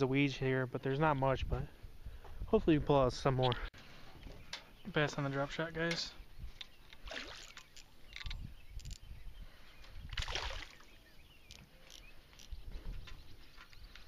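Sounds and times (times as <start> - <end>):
fish splashing at water surface: 10.1 - 10.8.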